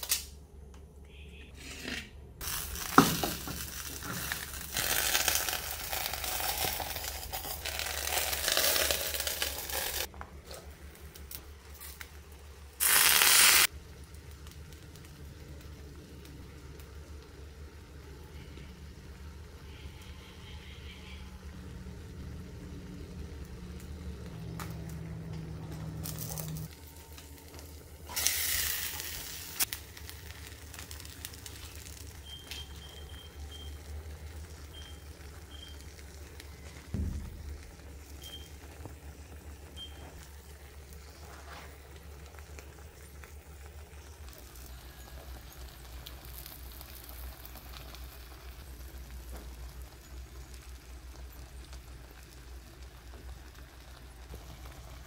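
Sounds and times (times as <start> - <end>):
food sizzling in a wok: 2.4 - 10.1, 12.8 - 15.2, 25.9 - 38.9, 40.2 - 55.0
low hum: 33.3 - 41.2
dull thump: 37.0 - 37.7.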